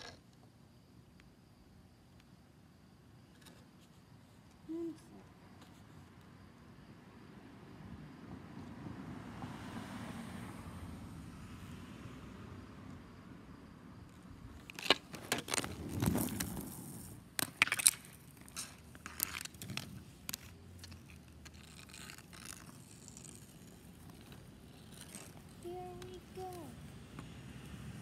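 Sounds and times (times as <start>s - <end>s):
inline skates scraping on concrete: 14.2s - 28.0s
hockey stick clacking on concrete: 14.6s - 26.4s.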